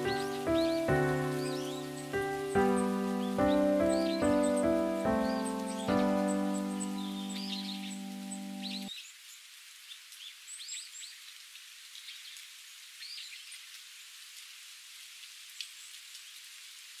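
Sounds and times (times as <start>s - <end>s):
classical piano chord: 0.0s - 8.9s
small birds chirping: 0.0s - 13.8s
outdoor hiss: 0.0s - 17.0s.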